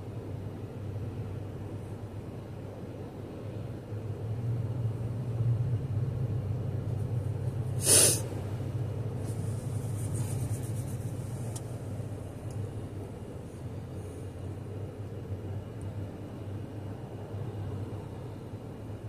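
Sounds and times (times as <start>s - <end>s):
car idling inside cabin: 0.0s - 19.0s
short loud rush of noise: 7.8s - 8.4s.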